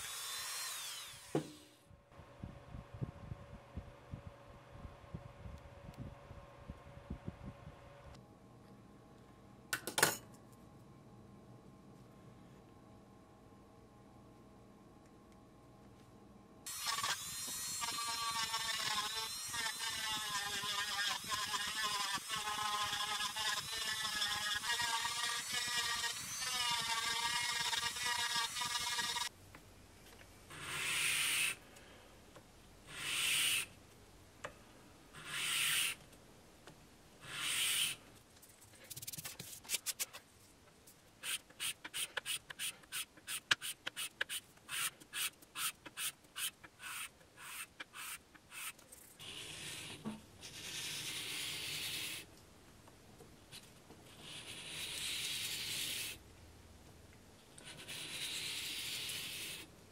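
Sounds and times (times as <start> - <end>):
rotary tool whining: 0.0 - 1.8, 16.7 - 29.3.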